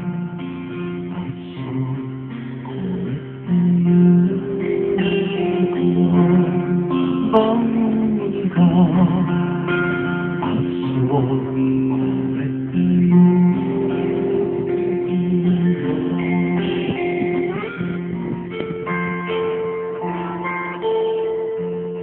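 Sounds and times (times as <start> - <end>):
acoustic guitar melody: 0.0 - 22.0.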